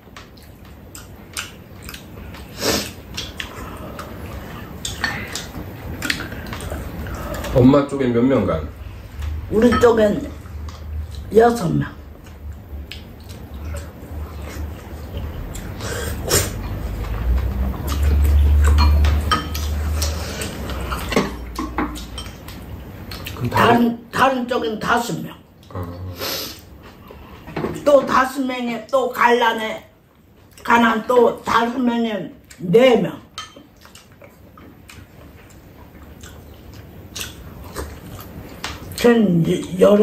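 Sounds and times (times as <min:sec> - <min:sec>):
utensils clinking on bowls: 0:18.2 - 0:22.5
tableware clinking on ceramic bowls: 0:18.7 - 0:19.7.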